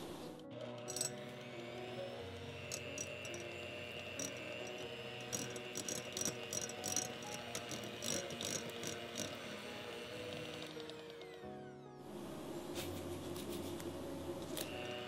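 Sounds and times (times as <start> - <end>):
electric hand mixer whining: 0.0 - 12.6, 13.8 - 15.0
soft background music: 0.0 - 15.0
beaters clicking against glass bowl: 2.7 - 9.6.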